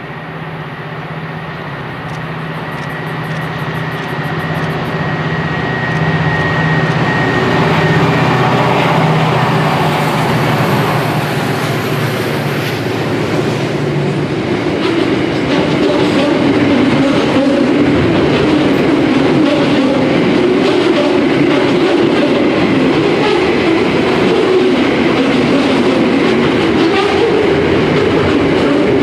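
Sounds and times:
diesel locomotive engines running: 0.0 - 29.0.

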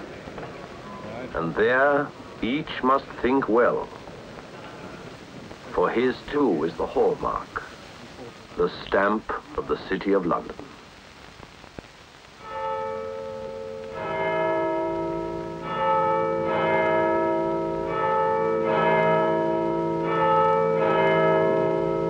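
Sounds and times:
church bells ringing: 12.4 - 22.0.

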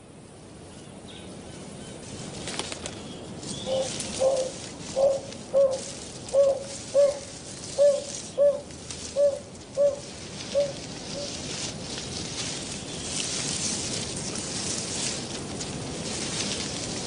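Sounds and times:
rustling hiss: 0.0 - 17.0
bird hooting: 3.6 - 11.4.

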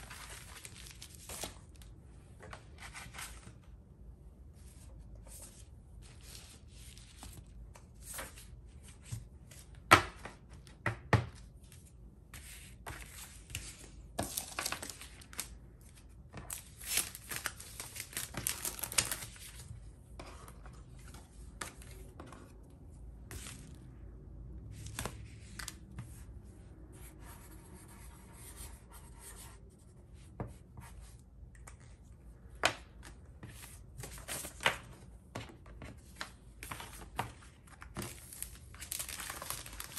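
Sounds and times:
plastic sleeves and paper crinkling: 0.0 - 3.7, 12.8 - 19.9, 35.8 - 39.9.

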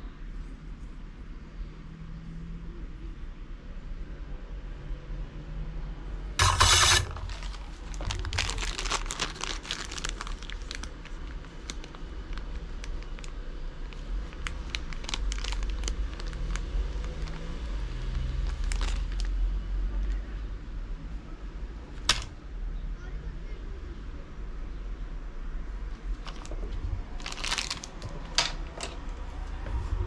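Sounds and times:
loud clatter: 6.4 - 8.6
plastic bag crinkling: 6.4 - 13.3, 14.2 - 19.4, 26.2 - 29.0.

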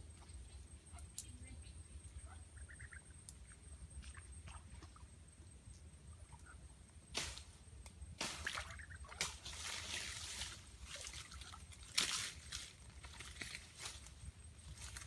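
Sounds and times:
leafy branches rustling: 7.1 - 15.0
stream water splashing: 8.2 - 13.6.

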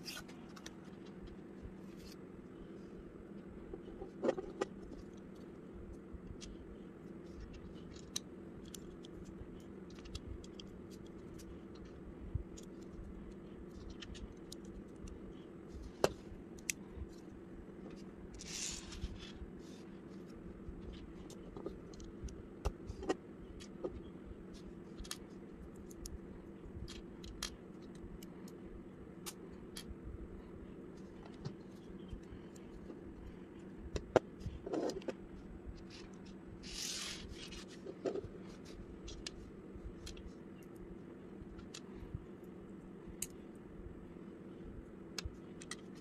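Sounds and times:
steady low hum: 0.0 - 46.0.

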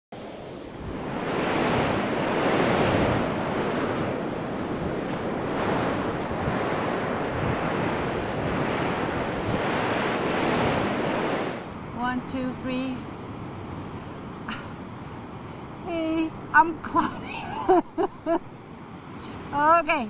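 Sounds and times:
surf breaking on beach: 0.2 - 12.1
wind across microphone: 0.2 - 17.6.

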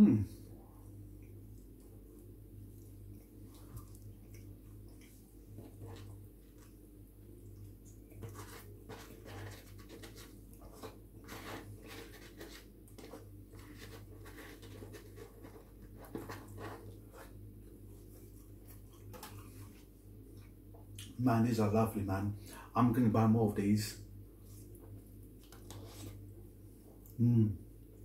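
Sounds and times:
low steady hum: 0.0 - 28.0
person chewing: 1.2 - 9.1.

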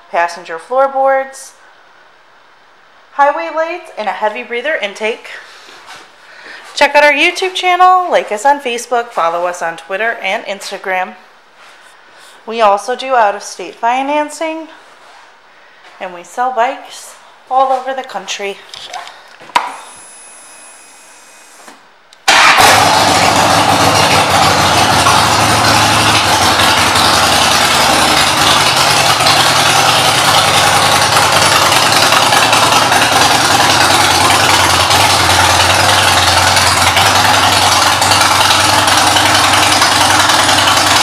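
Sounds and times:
motorcycle engine idling: 22.3 - 41.0.

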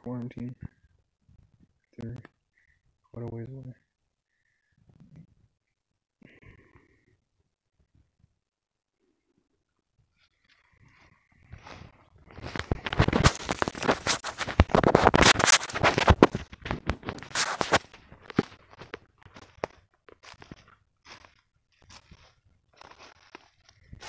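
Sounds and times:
footsteps crunching through dry leaves: 17.2 - 23.7.

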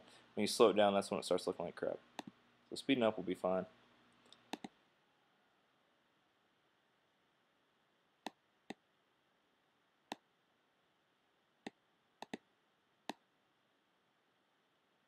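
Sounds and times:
computer mouse clicks: 2.2 - 2.4, 4.3 - 4.8, 11.6 - 12.4.

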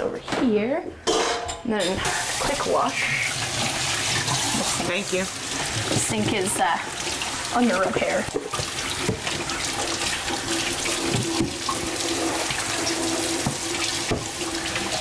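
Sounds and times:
tap running into sink: 3.5 - 15.0.

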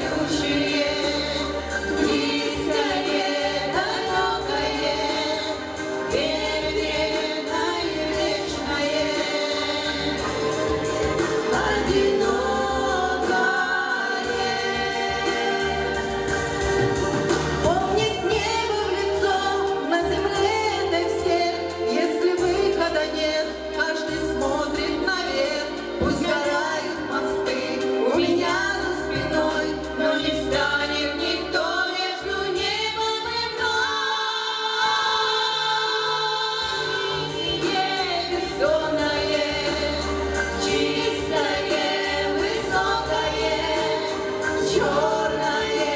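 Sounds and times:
instrumental accompaniment with bass: 0.0 - 45.9
women singing in harmony: 0.0 - 45.9.

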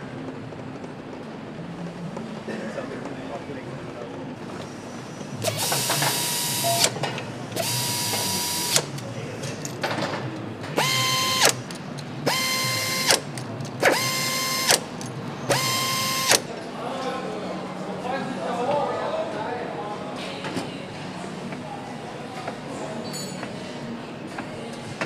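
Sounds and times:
power nutrunner whining: 10.8 - 11.7, 12.3 - 14.9, 15.5 - 16.5.

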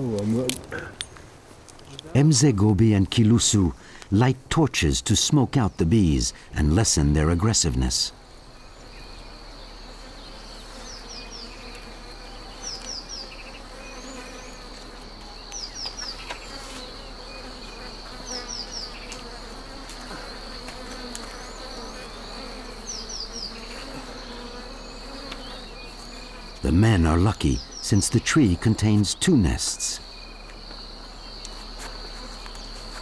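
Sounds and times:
bees buzzing: 5.3 - 33.0.

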